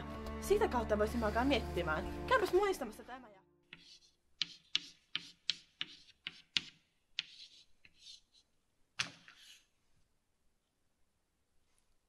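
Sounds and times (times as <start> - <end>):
chalk scratching on blackboard: 3.7 - 9.7
chalk tapping on blackboard: 3.7 - 9.7.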